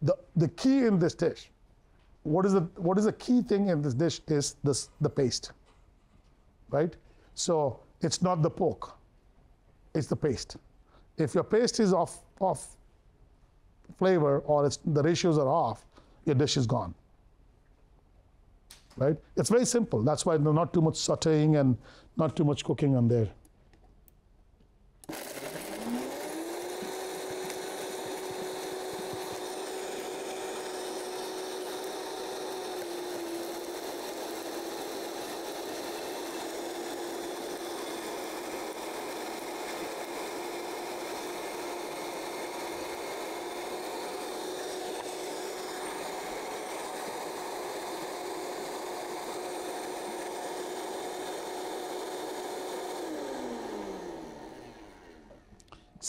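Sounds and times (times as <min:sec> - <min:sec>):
blender running: 0:25.0 - 0:55.6.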